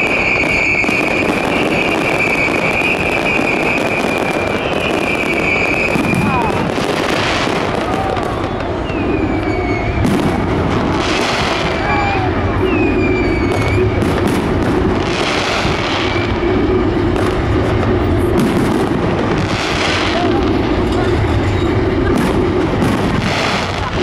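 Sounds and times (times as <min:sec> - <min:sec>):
firework crackling: 0:00.0 - 0:24.0
firework shells bursting: 0:00.0 - 0:24.0.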